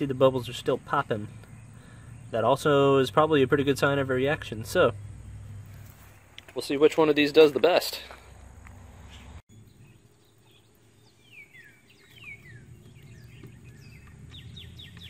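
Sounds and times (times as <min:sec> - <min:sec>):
low steady rumble: 0:00.0 - 0:06.6
birds chirping: 0:00.0 - 0:15.0.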